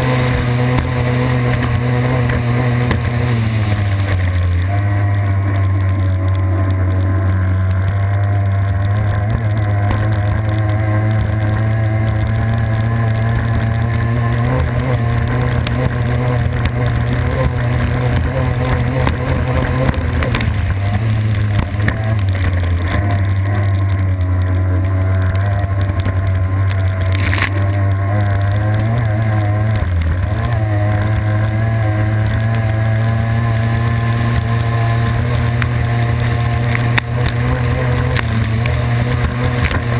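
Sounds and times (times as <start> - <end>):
water rushing past hull: 0.0 - 5.8
boat engine running hard: 0.0 - 39.9
sharp crack: 26.7 - 28.8.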